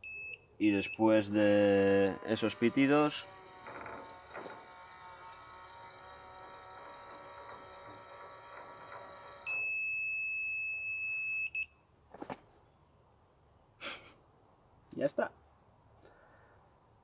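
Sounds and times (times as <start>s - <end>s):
small motor humming: 1.3s - 9.8s.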